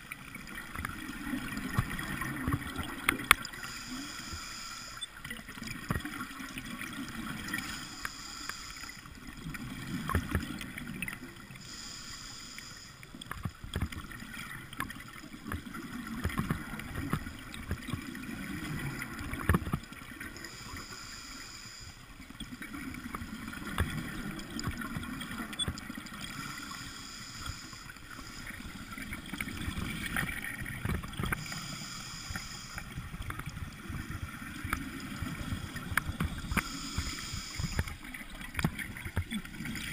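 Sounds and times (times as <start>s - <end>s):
underwater hiss: 2.8s - 5.0s, 7.2s - 9.4s, 11.4s - 13.2s, 20.3s - 22.2s, 26.2s - 30.3s, 31.2s - 38.2s.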